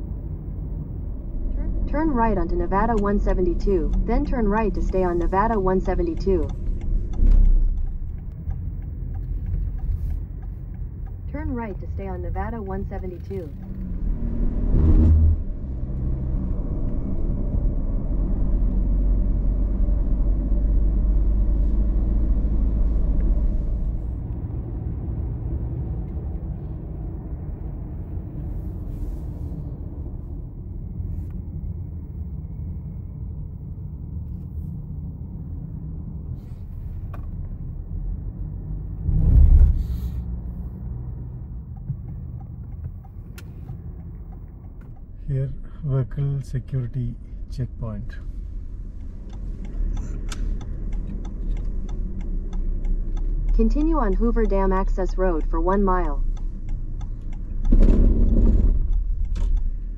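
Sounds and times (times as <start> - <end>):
car engine and tyres rumbling: 0.0 - 59.9.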